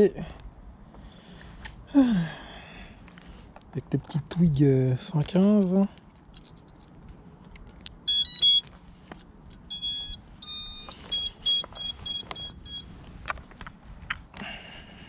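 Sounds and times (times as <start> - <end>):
short beeps: 8.1 - 8.7, 9.7 - 12.9
motor startup tones: 9.7 - 12.8.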